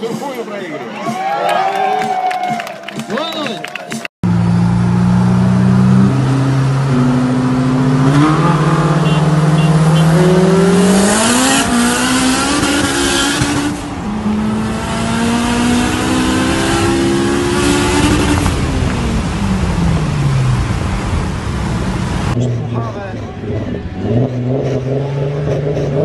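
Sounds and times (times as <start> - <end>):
car engine accelerating: 4.2 - 26.0.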